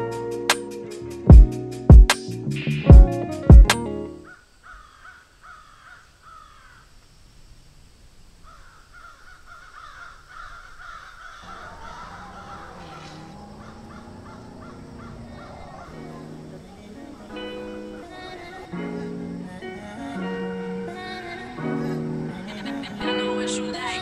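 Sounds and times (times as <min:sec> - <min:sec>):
birds calling: 0:04.2 - 0:06.9, 0:08.4 - 0:24.0.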